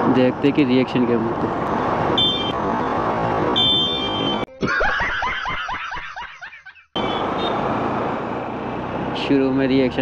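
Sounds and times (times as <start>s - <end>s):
motorcycle wind and road noise: 7.0s - 10.0s.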